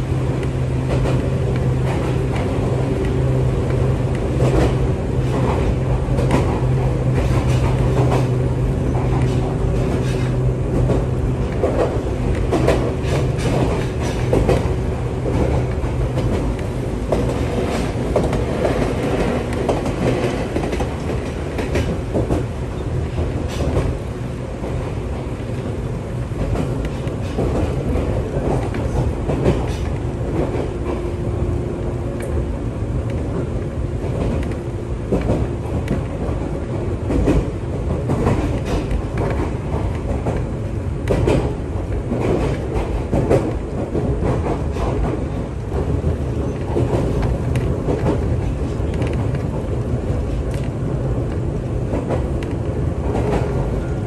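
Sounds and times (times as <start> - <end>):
train running inside carriage: 0.0 - 54.0
wheels clicking on track: 0.3 - 24.0, 33.0 - 54.0.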